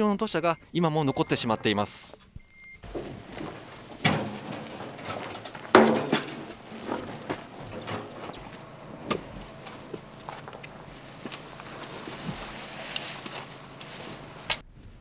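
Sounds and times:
outdoor background noise: 0:00.0 - 0:15.0
shovels scraping and knocking: 0:02.8 - 0:14.6.

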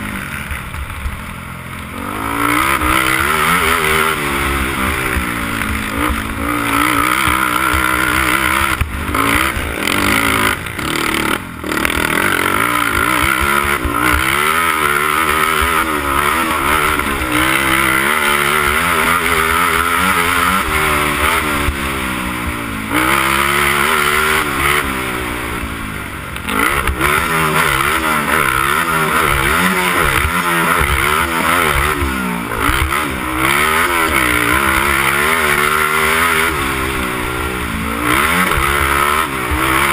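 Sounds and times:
quad engine revving: 0:00.0 - 0:39.9.

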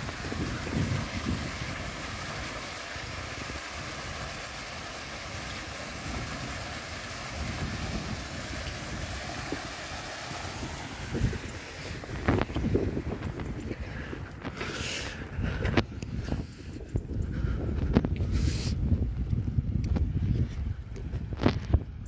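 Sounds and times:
water rushing into lock chamber: 0:00.0 - 0:13.4
wind buffeting microphone: 0:00.0 - 0:22.0.

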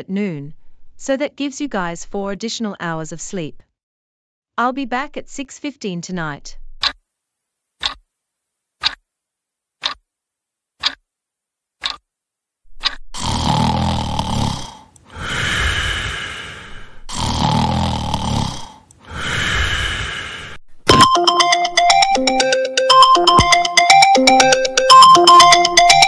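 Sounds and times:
clock ticking: 0:07.8 - 0:08.0, 0:10.8 - 0:11.0, 0:11.8 - 0:12.0, 0:20.9 - 0:26.0
loud snoring: 0:13.2 - 0:20.6.

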